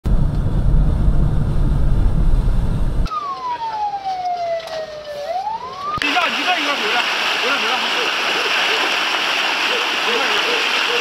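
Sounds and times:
truck engine rumble: 0.0s - 3.4s
emergency siren wailing: 3.1s - 7.0s
water churning: 6.0s - 11.0s.

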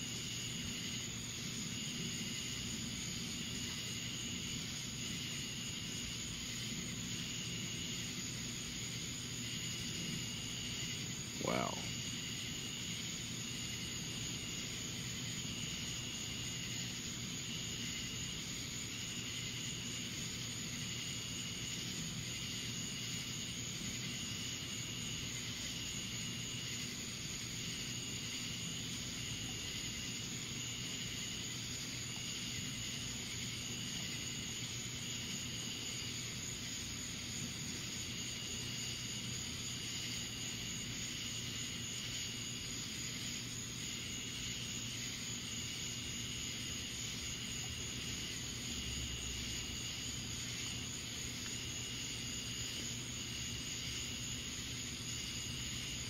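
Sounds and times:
insects droning: 0.0s - 56.0s
insect trilling call: 9.7s - 12.4s.

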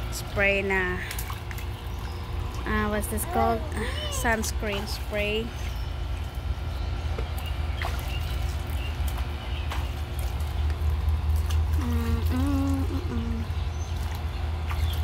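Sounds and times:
steady low rumble: 0.0s - 15.0s
water splashing and trickling: 0.0s - 15.0s
wavering vocal sound: 11.8s - 13.6s.

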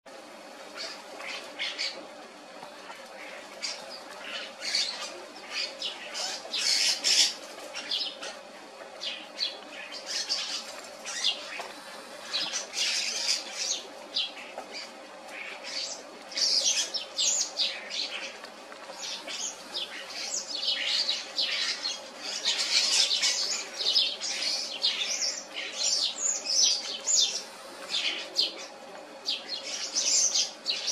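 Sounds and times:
starlings squabbling: 18.9s - 28.8s.

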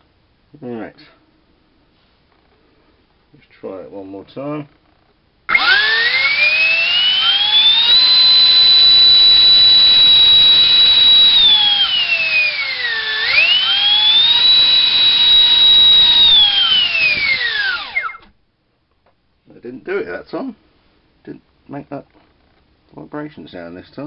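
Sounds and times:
electric fan high-pitched whine: 5.5s - 18.4s.

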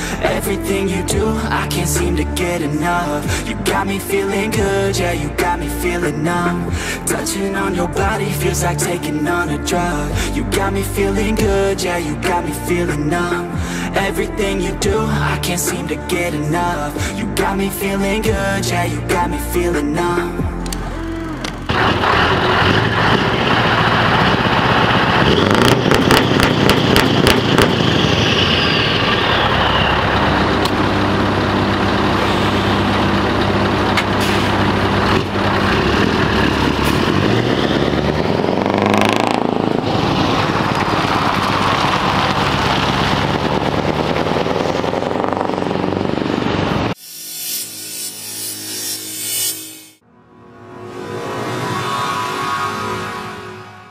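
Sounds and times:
truck engine revving: 20.4s - 47.0s.

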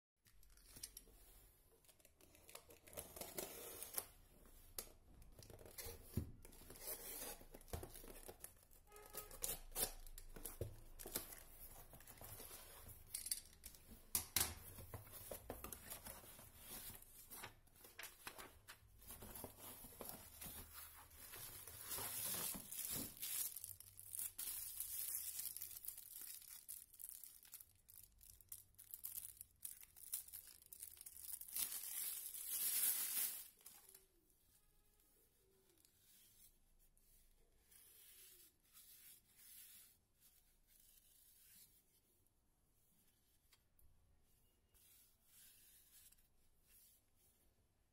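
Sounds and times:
cardboard rustling and scraping: 14.8s - 23.2s
plastic wrapping crinkling: 15.2s - 34.0s.

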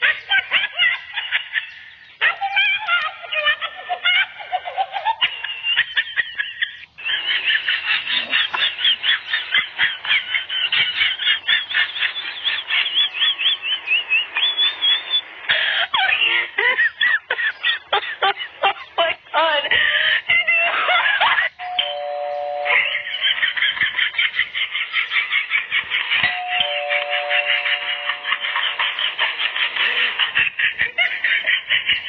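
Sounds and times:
high-pitched chirping animal calls: 11.2s - 16.5s, 21.4s - 23.4s, 26.2s - 29.2s.

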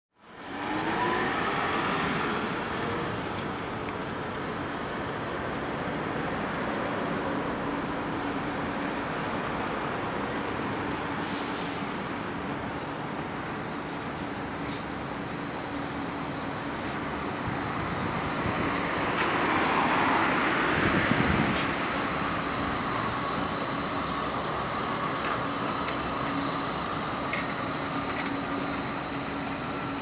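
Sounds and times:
tram running by: 0.2s - 30.0s
accelerating vehicle whine: 0.3s - 4.8s, 13.3s - 30.0s.

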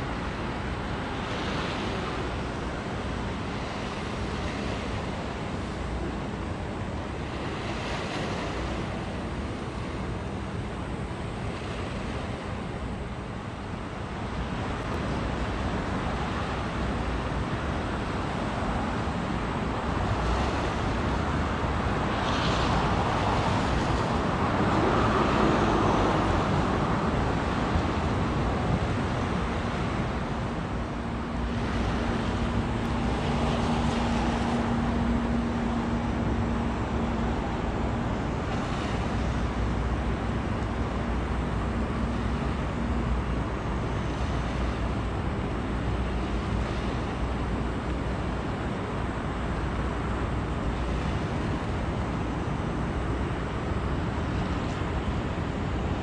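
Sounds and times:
rushing water of ship wash: 0.0s - 56.0s
steady low hum: 0.0s - 56.0s
wind on microphone: 13.8s - 56.0s.

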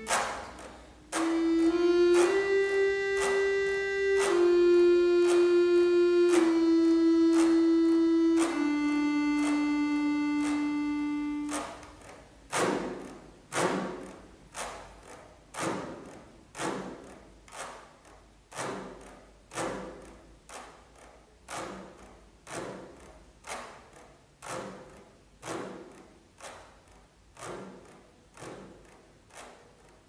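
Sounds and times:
accordion thudding pulse: 0.0s - 14.3s.

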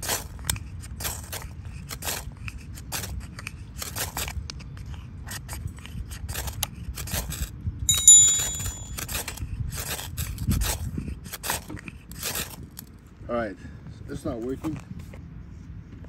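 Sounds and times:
short bright chime: 7.9s - 9.0s.

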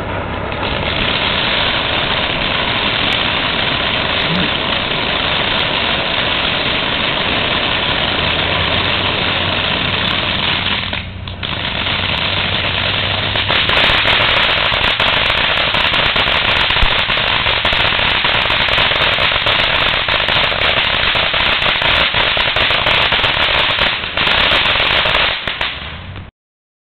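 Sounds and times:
dense rapid crackling: 0.0s - 25.9s
firework fountain hissing: 0.0s - 26.3s.

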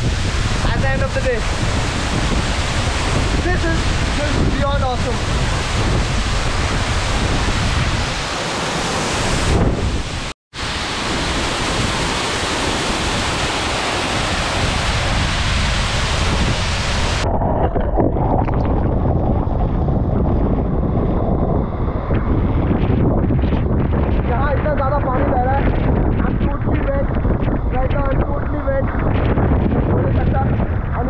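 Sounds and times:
waterfall rushing: 0.0s - 17.5s
wind buffeting microphone: 0.0s - 31.0s.

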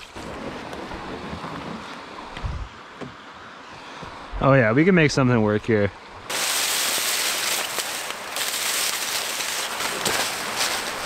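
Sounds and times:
steady rushing hiss: 0.2s - 11.0s
dry leaves crackling and rustling: 6.3s - 11.0s.

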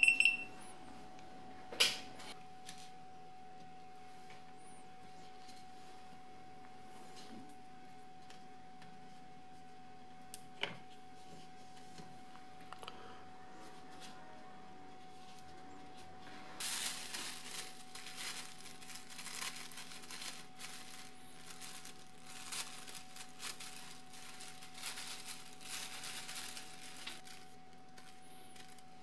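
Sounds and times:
plastic bag crinkling: 16.6s - 29.0s.

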